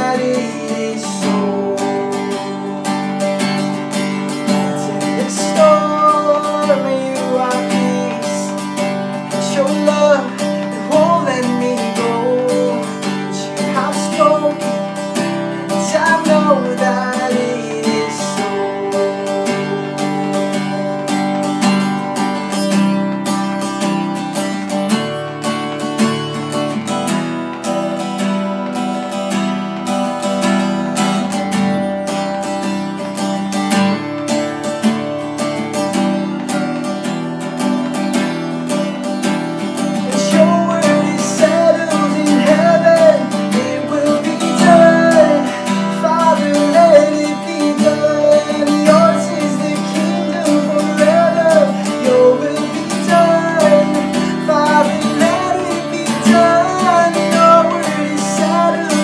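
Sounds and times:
man singing: 0.0s - 20.8s, 39.8s - 59.0s
acoustic guitar strummed: 0.0s - 59.0s.

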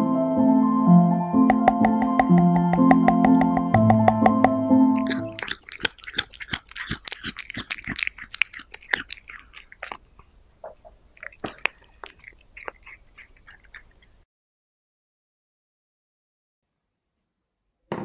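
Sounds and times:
cat chewing food: 1.5s - 4.1s, 5.0s - 14.2s.

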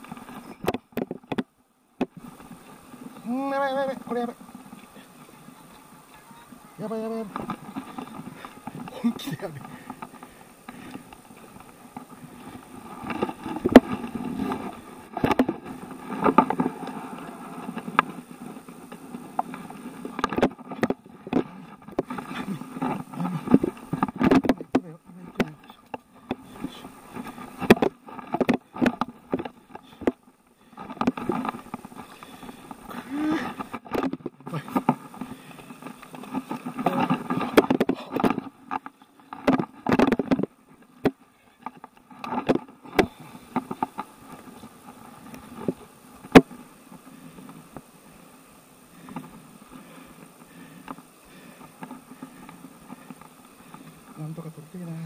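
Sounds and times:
knocks and rustles of handling: 6.8s - 47.9s.

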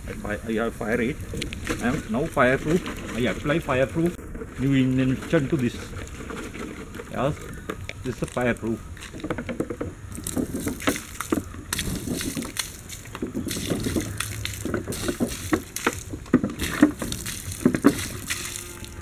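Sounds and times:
fire burning: 0.0s - 19.0s
liquid pouring and splashing: 10.1s - 19.0s.

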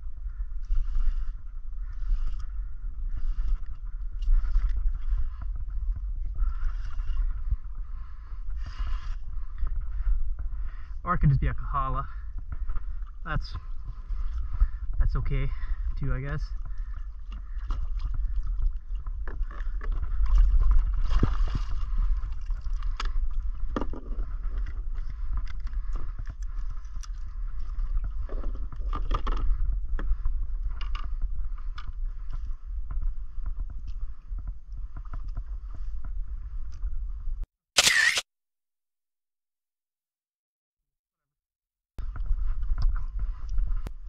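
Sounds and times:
water splashing around kayak hull: 16.5s - 31.0s.

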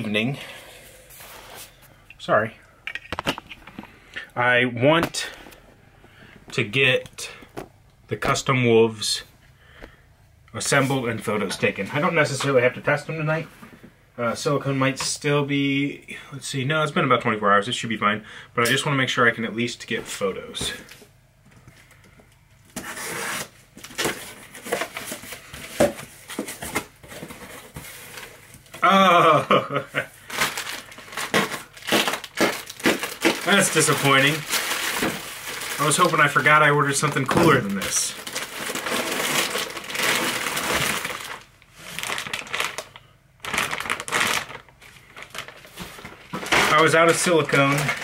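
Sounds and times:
cardboard rustling: 30.3s - 48.0s.

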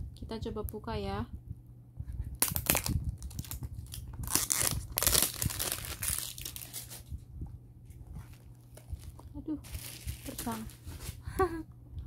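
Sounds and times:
packaging crinkling and tearing: 2.4s - 7.1s, 8.2s - 11.2s.

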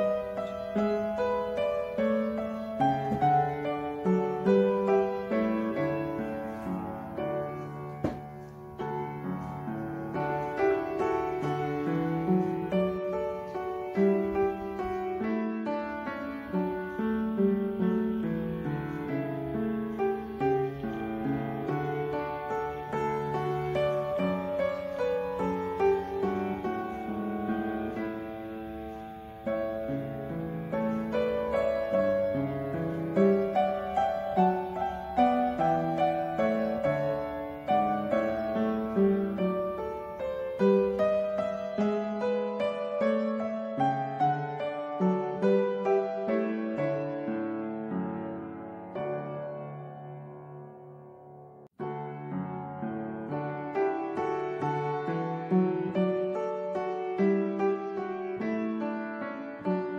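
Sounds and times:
piano single notes: 0.0s - 59.9s.

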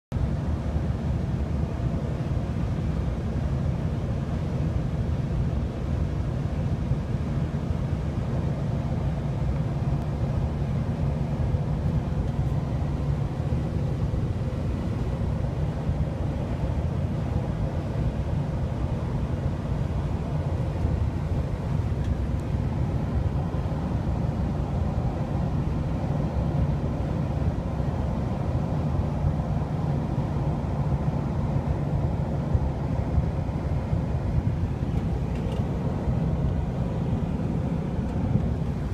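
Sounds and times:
vehicle road rumble: 6.9s - 38.9s.

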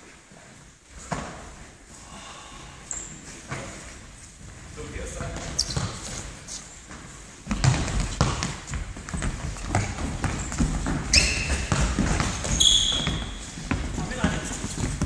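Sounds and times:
running footsteps: 6.8s - 15.0s
ball kicked and bouncing: 7.4s - 15.0s.

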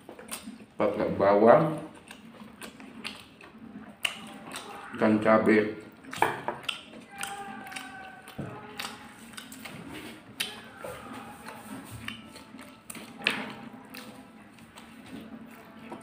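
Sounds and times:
slurping and chewing noodles: 0.0s - 16.0s
wet mouth clicks: 0.1s - 0.7s, 1.7s - 4.9s, 5.8s - 10.7s, 11.4s - 15.1s.

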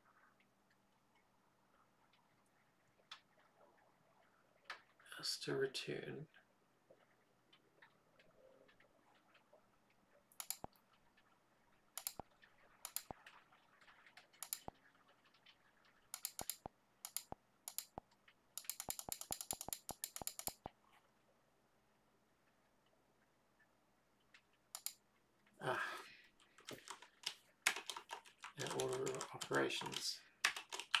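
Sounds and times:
keyboard and mouse clicking: 10.3s - 10.8s, 12.0s - 20.7s, 24.7s - 25.0s, 26.5s - 31.0s.

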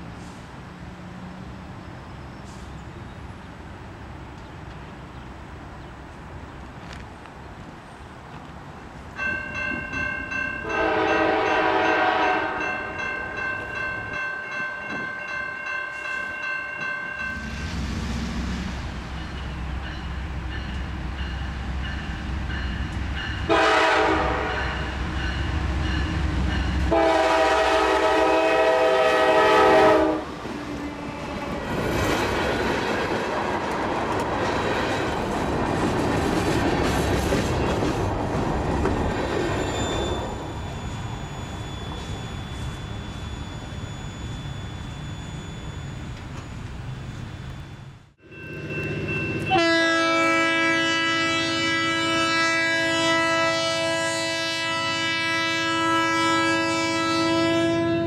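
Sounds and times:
locomotive horn blasts: 10.6s - 13.0s, 23.5s - 25.0s, 26.8s - 30.3s, 49.4s - 58.0s.

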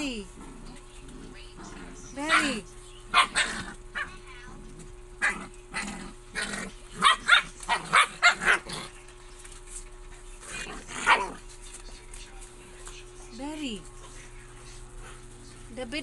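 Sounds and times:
puppy yipping and grumbling: 5.2s - 8.9s, 10.5s - 11.4s.

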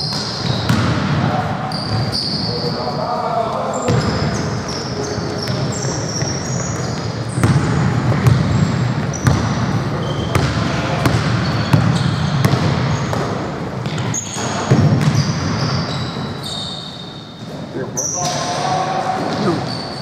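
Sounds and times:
basketball bouncing: 0.0s - 2.0s, 5.4s - 15.8s
sneakers squeaking: 0.0s - 20.0s.

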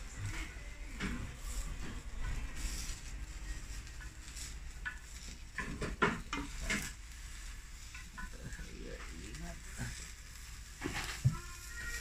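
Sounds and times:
egg sizzling: 0.0s - 12.0s
chopsticks knocking on a pan: 4.8s - 6.9s.

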